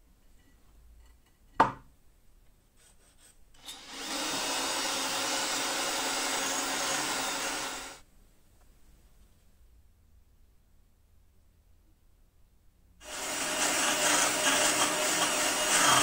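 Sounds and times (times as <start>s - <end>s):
cordless drill grinding: 3.6s - 8.0s, 13.0s - 16.0s.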